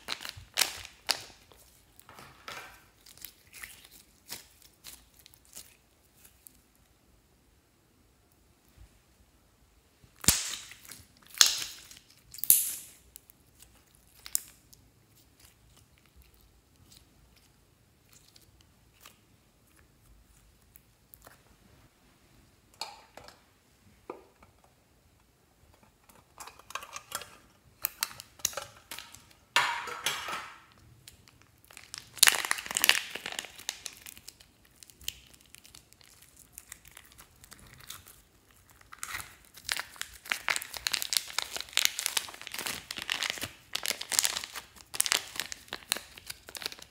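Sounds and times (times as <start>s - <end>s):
plastic crinkling: 0.0s - 6.7s, 27.8s - 46.9s
wet slime squishes: 2.7s - 6.8s, 10.2s - 21.6s, 30.7s - 46.9s.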